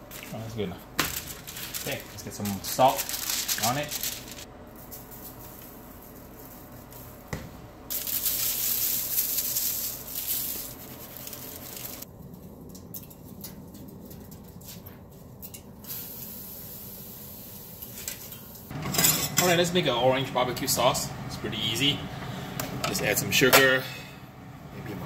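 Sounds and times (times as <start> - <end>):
salt grains pattering: 7.9 - 12.1.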